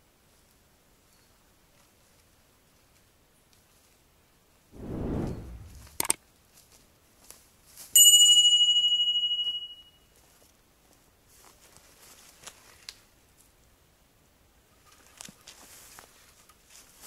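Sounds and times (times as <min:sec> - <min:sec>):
footsteps through undergrowth: 0:11.3 - 0:12.9.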